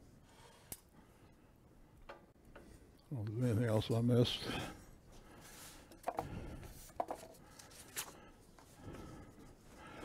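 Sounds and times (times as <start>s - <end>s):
paper rustling: 6.8s - 8.2s.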